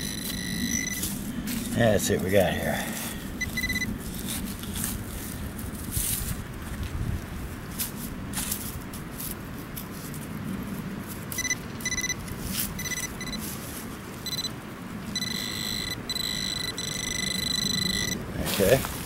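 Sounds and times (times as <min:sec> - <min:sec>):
metal detector pinpointer buzzing: 0:00.0 - 0:01.2, 0:03.4 - 0:03.9, 0:11.3 - 0:13.4, 0:14.2 - 0:18.8.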